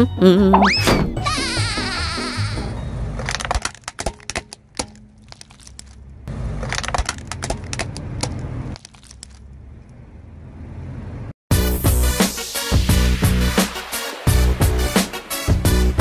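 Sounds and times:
brittle objects cracking and crunching: 0:03.2 - 0:06.1, 0:08.8 - 0:09.5.

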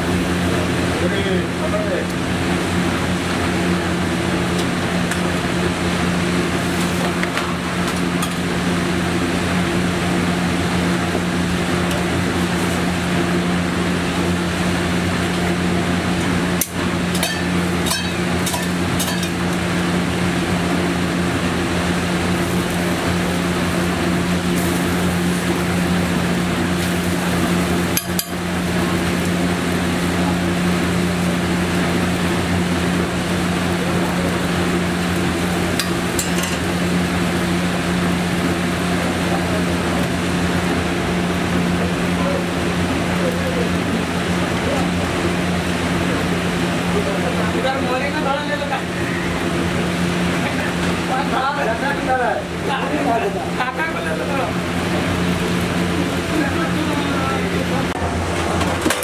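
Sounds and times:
mechanical hum: 0:00.0 - 0:59.0
spatula tapping metal griddle: 0:16.6 - 0:19.4, 0:27.9 - 0:28.4, 0:35.8 - 0:36.6.

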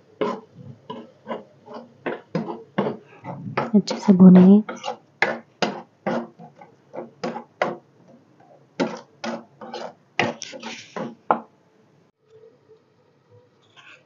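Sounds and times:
metal spoon scraping pot: 0:00.2 - 0:07.5, 0:08.8 - 0:11.2.

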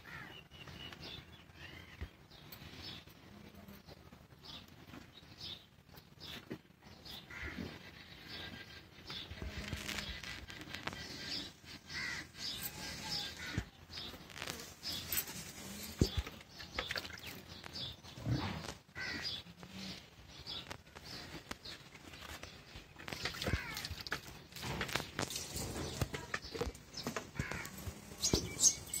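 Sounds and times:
crows cawing: 0:00.0 - 0:00.4, 0:07.3 - 0:07.7, 0:10.9 - 0:13.7, 0:19.0 - 0:19.4, 0:23.3 - 0:24.0, 0:27.4 - 0:27.8
birds calling: 0:00.0 - 0:03.1, 0:04.4 - 0:29.0.

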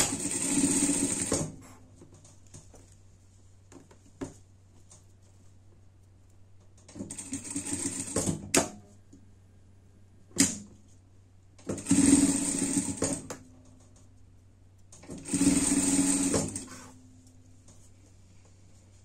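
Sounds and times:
sewing machine stitching: 0:00.0 - 0:01.6, 0:06.9 - 0:08.8, 0:11.6 - 0:13.4, 0:15.0 - 0:17.0.

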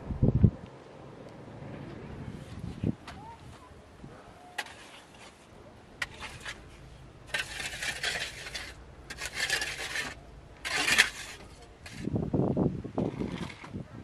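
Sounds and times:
digging tool scraping gravel: 0:04.4 - 0:12.2.

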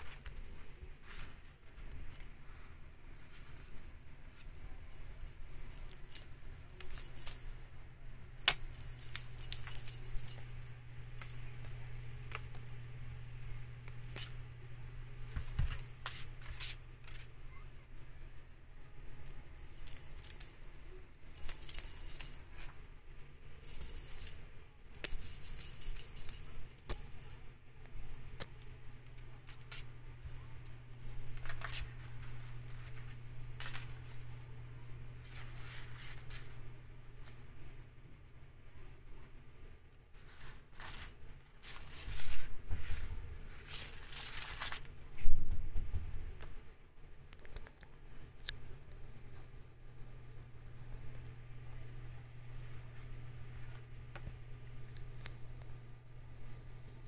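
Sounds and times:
small bell jingling: 0:02.0 - 0:18.4, 0:19.2 - 0:22.8, 0:23.4 - 0:34.3, 0:35.2 - 0:37.4, 0:40.8 - 0:44.9.

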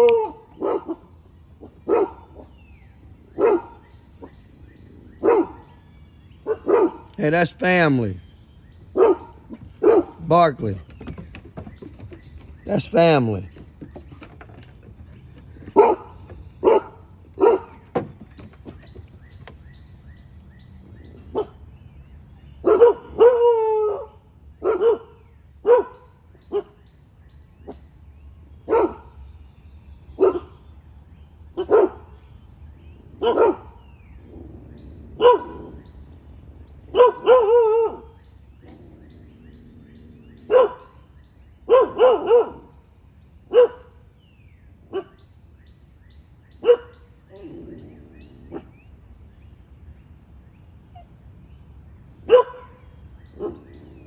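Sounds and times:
dog barking: 0:00.0 - 0:01.1, 0:01.8 - 0:02.5, 0:03.4 - 0:04.3, 0:05.2 - 0:05.7, 0:06.4 - 0:07.1, 0:08.9 - 0:10.2, 0:15.6 - 0:18.1, 0:22.6 - 0:24.0, 0:24.6 - 0:26.7, 0:28.7 - 0:29.0, 0:30.2 - 0:30.5, 0:31.6 - 0:32.0, 0:33.2 - 0:33.7, 0:35.2 - 0:35.8, 0:36.9 - 0:38.1, 0:40.4 - 0:41.0, 0:41.7 - 0:42.7, 0:43.5 - 0:43.9, 0:44.9 - 0:45.2, 0:46.6 - 0:47.6, 0:52.3 - 0:53.9.

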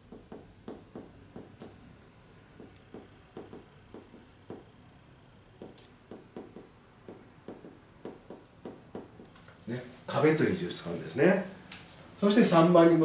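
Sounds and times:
marker pen writing on whiteboard: 0:00.0 - 0:09.4.

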